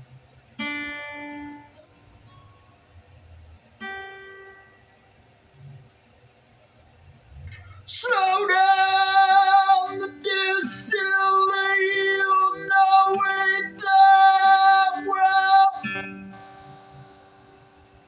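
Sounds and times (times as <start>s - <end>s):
acoustic guitar: 0.0s - 6.0s, 7.3s - 18.0s
man singing held notes: 7.6s - 16.0s.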